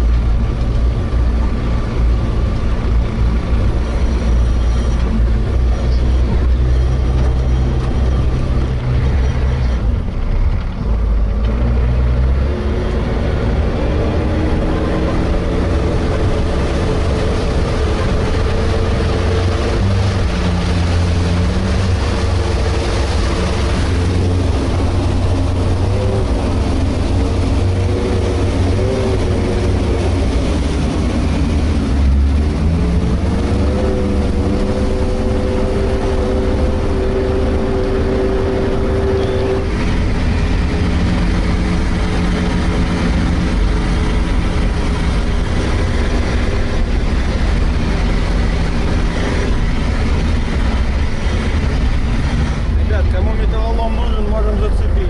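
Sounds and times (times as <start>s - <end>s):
diesel engine rumbling: 0.0s - 55.0s.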